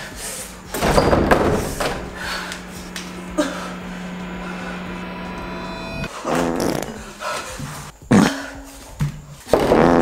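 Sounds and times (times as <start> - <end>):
steady low hum: 0.0 - 8.1
banging on door: 0.7 - 2.4.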